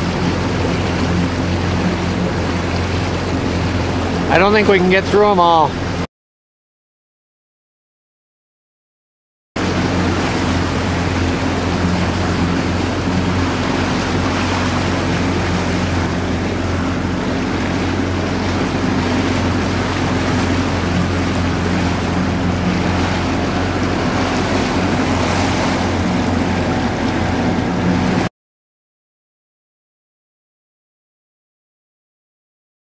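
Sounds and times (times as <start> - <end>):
motorboat engine running: 0.0 - 6.1, 9.6 - 28.3
water rushing past hull: 0.0 - 6.1, 9.6 - 28.3.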